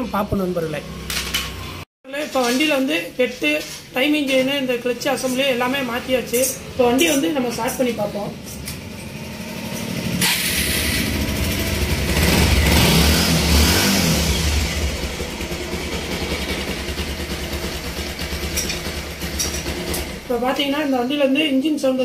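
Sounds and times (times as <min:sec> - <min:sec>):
motorcycle engine starting and idling: 0:00.0 - 0:01.9, 0:05.8 - 0:20.7.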